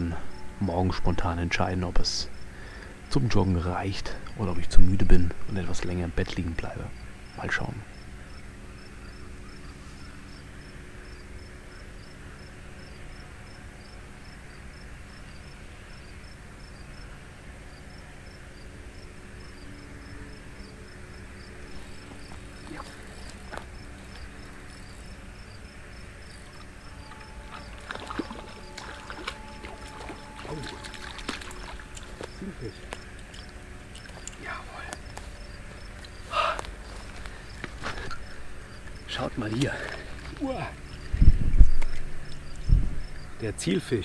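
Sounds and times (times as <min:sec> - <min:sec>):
crickets chirping: 0:00.0 - 0:44.0
low background hiss: 0:00.0 - 0:44.0.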